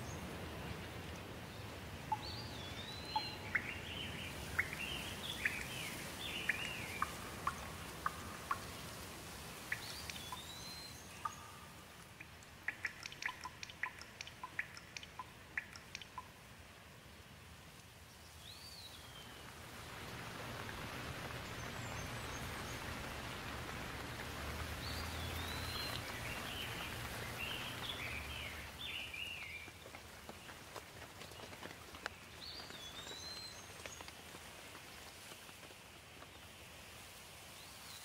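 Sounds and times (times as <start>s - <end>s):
light rain falling: 0.0s - 38.0s
water drips ticking: 2.0s - 16.6s, 19.2s - 36.3s
songbird calling: 2.1s - 8.9s, 9.7s - 16.3s, 24.0s - 29.7s.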